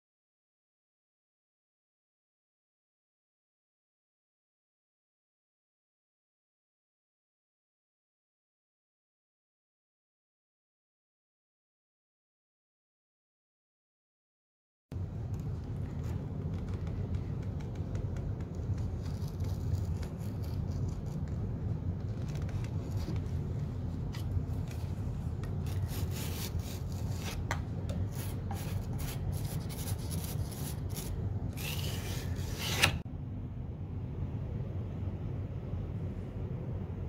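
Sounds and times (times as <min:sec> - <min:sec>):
steady low rumble: 0:15.0 - 0:32.4, 0:33.0 - 0:37.0
putty knife scraping wood: 0:25.4 - 0:33.0.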